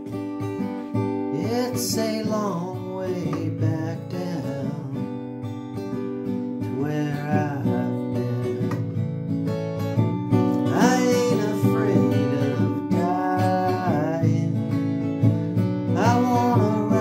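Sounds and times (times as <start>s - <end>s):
acoustic guitar strumming: 0.0s - 17.0s
man singing: 1.2s - 5.4s, 6.6s - 9.1s, 10.5s - 17.0s.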